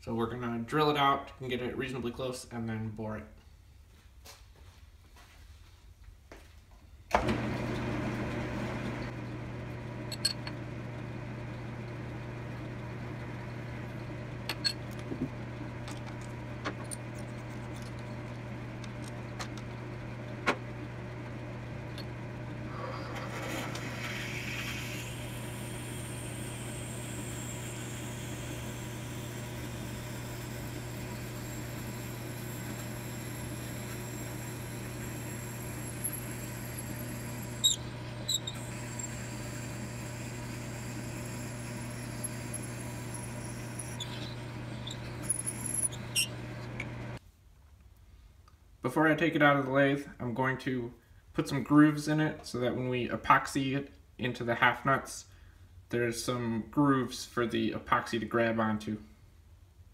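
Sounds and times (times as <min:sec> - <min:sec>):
lathe motor humming: 0:07.2 - 0:47.2
drill boring into metal: 0:21.9 - 0:47.2.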